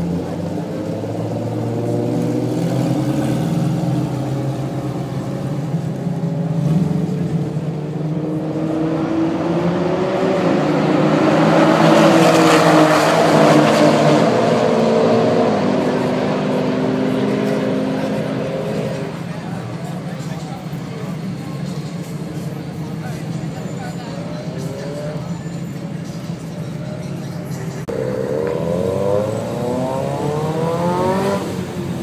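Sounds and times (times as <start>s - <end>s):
car accelerating nearby: 0.0s - 20.3s, 27.8s - 32.0s
performance car engines running: 0.0s - 32.0s.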